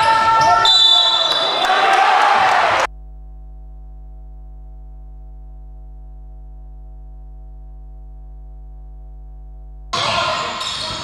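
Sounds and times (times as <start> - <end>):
electrical hum: 2.9 - 10.0.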